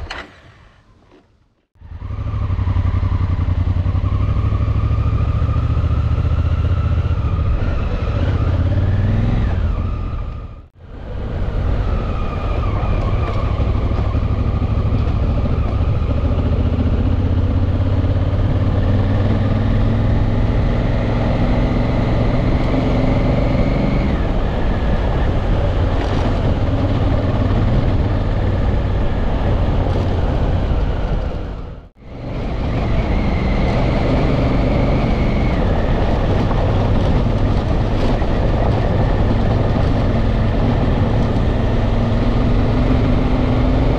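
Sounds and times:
wind and tyre rush: 0.0 - 43.9
motorcycle engine running: 12.6 - 43.9.

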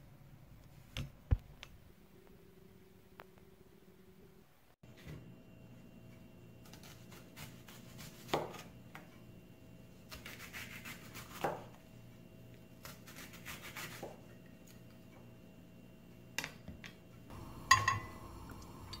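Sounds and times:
knife slicing onion: 6.6 - 8.8, 10.0 - 11.8, 12.7 - 14.3.

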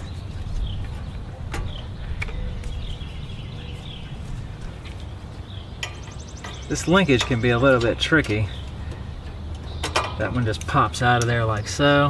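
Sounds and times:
light clicks and knocks: 5.7 - 11.6.

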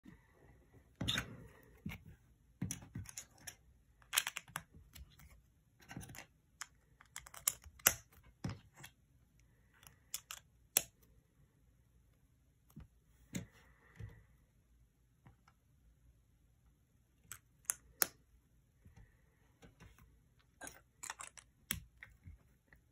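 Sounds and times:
plastic bricks clicking on table: 2.6 - 5.1, 5.9 - 8.9, 9.8 - 10.9.

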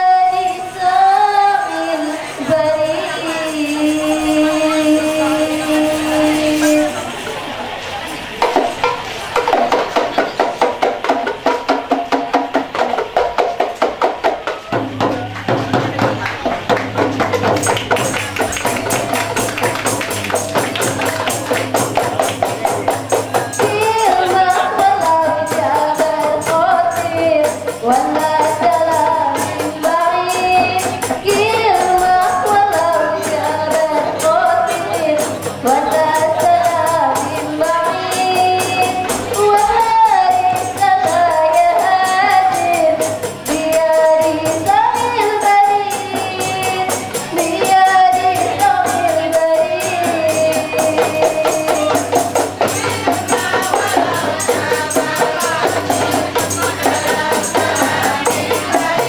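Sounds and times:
woman singing into a microphone: 0.0 - 7.2, 23.3 - 59.0
frame drums beating: 0.0 - 59.0.

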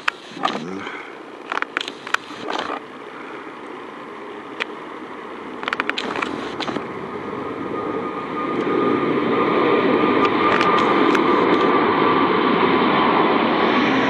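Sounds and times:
jet engines roaring: 0.0 - 14.0
rapid sharp clicks: 1.4 - 2.9, 5.6 - 6.8, 10.2 - 11.7.

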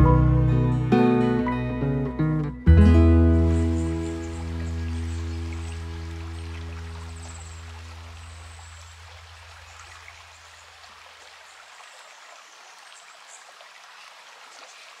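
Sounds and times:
low held music chord: 0.0 - 8.1
creek trickling: 2.8 - 15.0.

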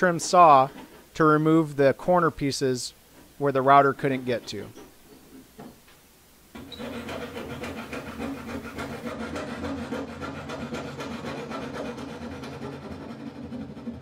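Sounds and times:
saw rasping through plywood: 6.6 - 14.0.

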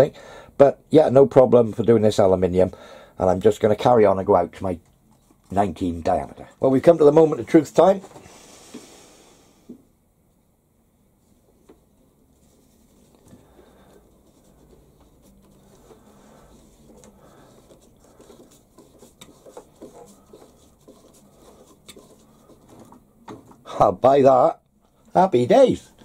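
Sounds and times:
plastic scratching and clicking: 16.8 - 23.6.

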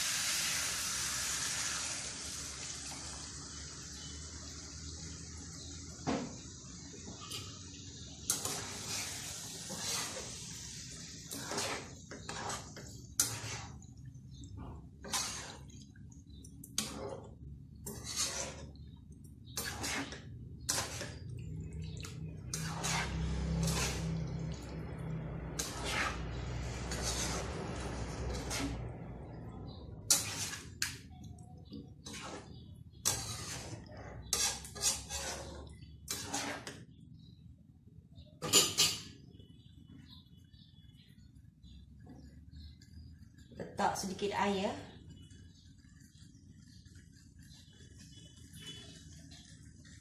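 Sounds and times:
frying sizzle in a wok: 0.0 - 39.3, 40.0 - 50.0
spoon scraping and knocking a wok: 8.2 - 15.7, 16.7 - 18.8, 19.5 - 21.3, 22.4 - 24.7, 25.4 - 28.9, 30.1 - 31.0, 31.8 - 36.9.

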